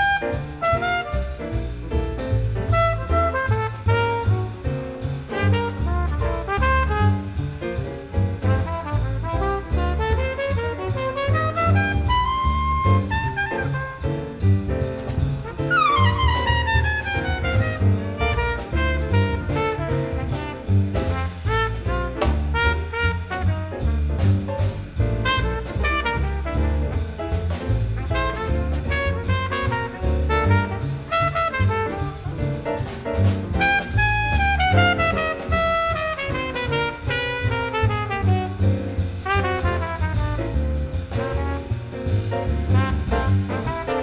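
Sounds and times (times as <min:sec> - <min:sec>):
trumpet solo fast runs: 0:00.0 - 0:01.4, 0:08.8 - 0:14.0, 0:15.7 - 0:23.6, 0:25.2 - 0:26.8, 0:28.0 - 0:32.3, 0:33.6 - 0:40.4
jazz big band: 0:00.0 - 0:44.0.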